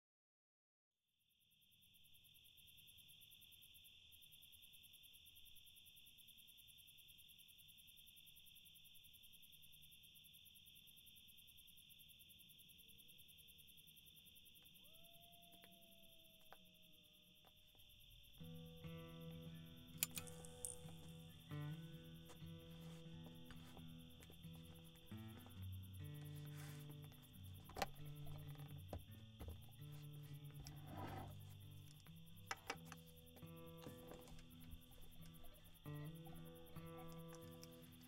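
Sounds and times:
crickets chirping: 1.3 - 38.0
faint clicks: 19.6 - 21.4.

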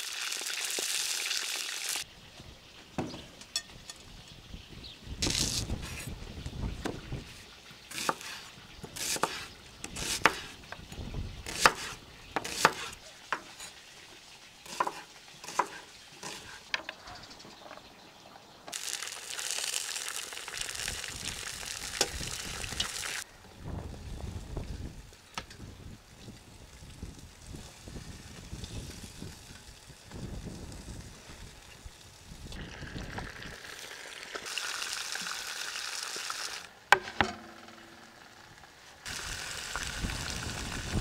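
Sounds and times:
meat sizzling in pot: 0.0 - 2.1, 18.7 - 23.3, 26.6 - 36.8, 38.1 - 41.0
knife chopping on wooden board: 11.5 - 13.5, 14.7 - 16.5.

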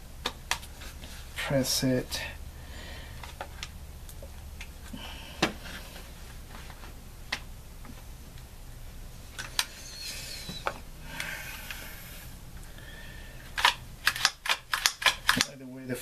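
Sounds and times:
rifle metallic clicks: 13.6 - 15.5.

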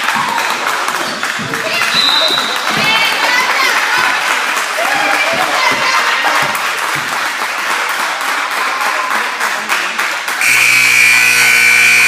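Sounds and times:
people clapping: 0.0 - 10.8
crowd noise: 0.0 - 12.0
scoreboard buzzer: 10.4 - 12.0.

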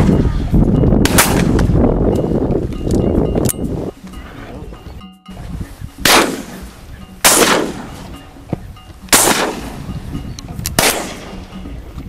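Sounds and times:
shotgun shots with echo: 1.0 - 1.7, 6.0 - 8.0, 9.1 - 9.8, 10.8 - 11.4.

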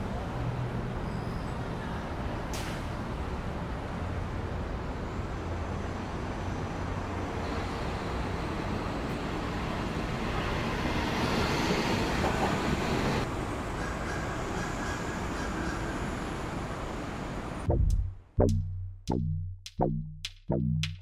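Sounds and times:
railway station noise: 0.0 - 17.7
city traffic rumble: 0.0 - 21.0
train moving: 7.1 - 17.6.

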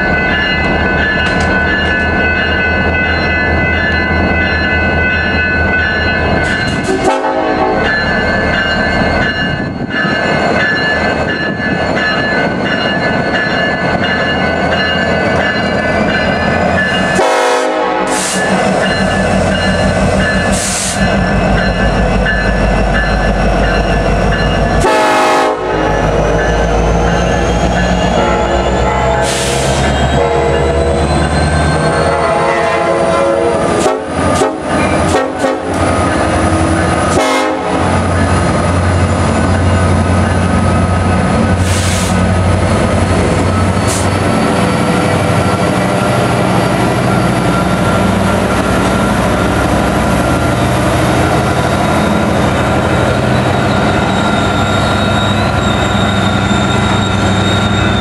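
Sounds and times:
train rumbling on rails: 0.0 - 58.0
locomotive horn blast: 6.9 - 7.9, 17.1 - 18.4, 24.8 - 26.0, 28.1 - 30.7, 31.9 - 35.8, 37.1 - 38.0.

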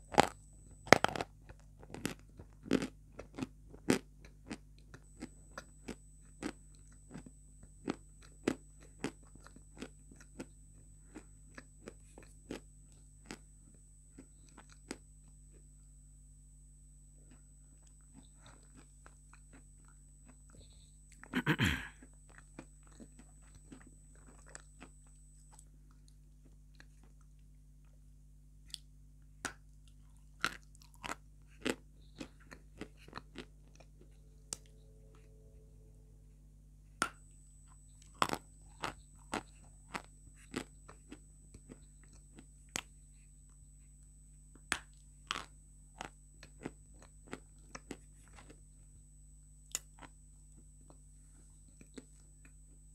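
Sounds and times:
crunching bite: 0.1 - 5.0, 30.4 - 33.9, 38.0 - 42.9, 44.7 - 48.6
chewing cracks and clicks: 0.1 - 7.3, 28.7 - 33.9, 38.0 - 42.9, 44.6 - 48.6, 49.7 - 50.2.

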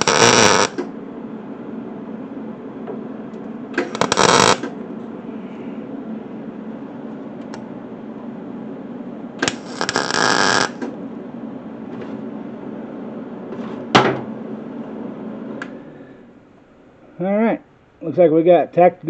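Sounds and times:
welding arc crackling: 0.0 - 0.9, 3.8 - 4.7, 9.4 - 10.9
steady hum: 0.0 - 19.0.

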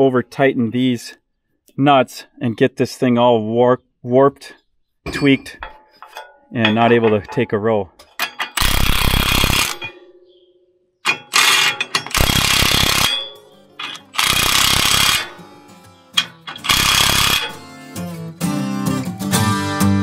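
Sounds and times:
impact wrench hammering: 8.1 - 10.0, 11.0 - 15.5, 16.2 - 17.7.

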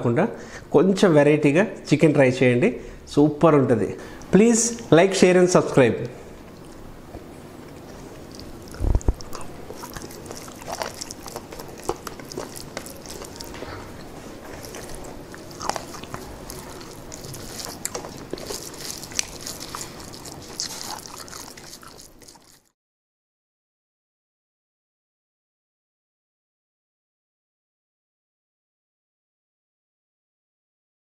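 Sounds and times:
wet clicks of food mixing: 6.0 - 22.7
close chewing and biting: 6.4 - 22.8.

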